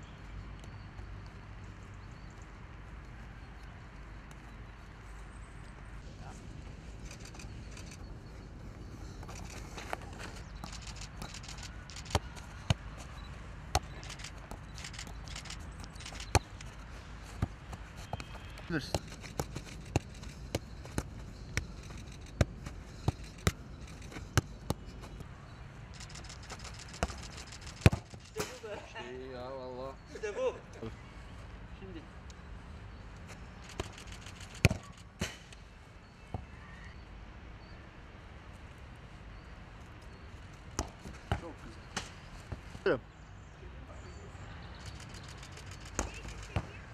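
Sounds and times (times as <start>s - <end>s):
outdoor background noise: 0.0s - 46.9s
football thuds: 12.0s - 13.1s, 27.0s - 28.6s, 34.6s - 35.4s, 40.8s - 42.7s
football bouncing off head: 27.8s - 28.5s, 34.6s - 35.4s.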